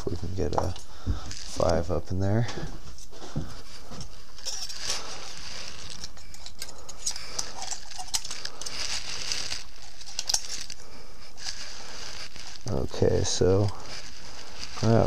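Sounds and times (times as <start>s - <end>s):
steady hiss: 0.0s - 15.0s
metallic clicks and scrapes: 4.0s - 15.0s.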